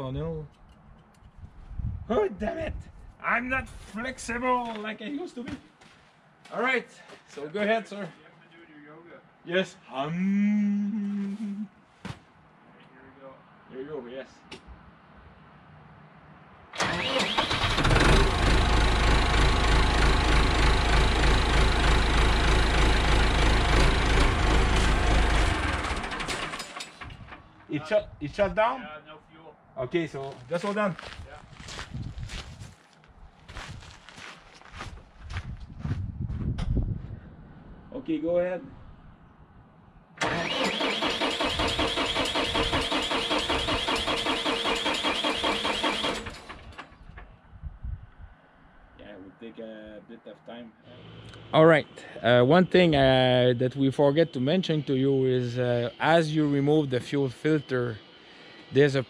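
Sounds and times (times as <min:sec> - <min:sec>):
tractor diesel engine running: 0:16.8 - 0:27.5, 0:40.2 - 0:47.2.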